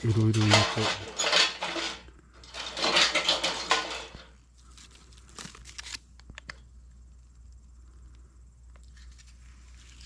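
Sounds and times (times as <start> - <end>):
twigs rustling and crackling: 2.4 - 6.6, 8.1 - 10.0.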